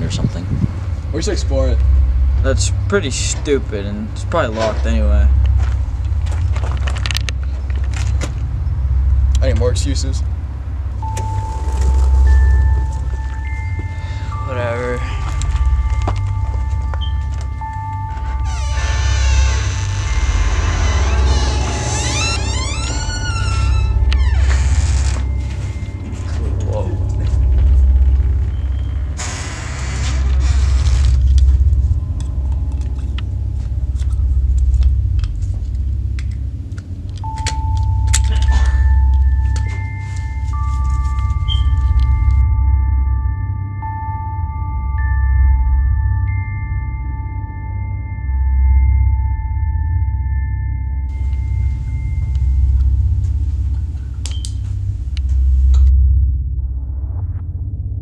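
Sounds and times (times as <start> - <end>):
deep rumbling drone: 0.0 - 58.0
high sustained tone: 0.0 - 58.0
small objects clicking and rattling: 6.2 - 8.3.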